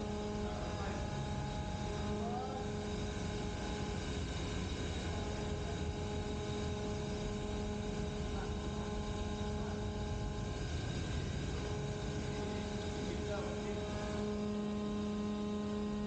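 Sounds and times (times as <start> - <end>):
steering gear machinery humming: 0.0 - 16.0.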